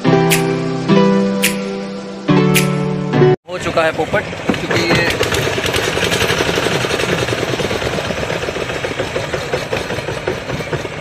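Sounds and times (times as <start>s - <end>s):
outboard motor clattering: 3.6s - 11.0s.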